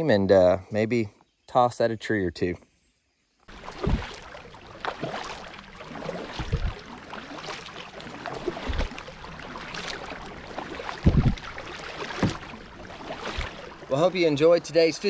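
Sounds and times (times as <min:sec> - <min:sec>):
dull low thumps: 0:03.5 - 0:06.9, 0:08.2 - 0:13.9
paddle splashing into water: 0:03.5 - 0:15.0
water dripping off paddle: 0:03.5 - 0:15.0.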